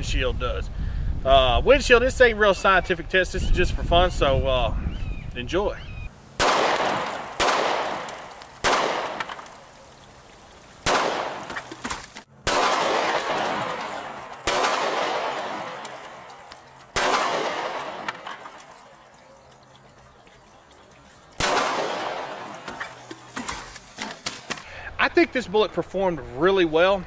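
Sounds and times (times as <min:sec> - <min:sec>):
pistol shots: 0:06.4 - 0:09.5, 0:10.8 - 0:18.6, 0:21.4 - 0:24.6.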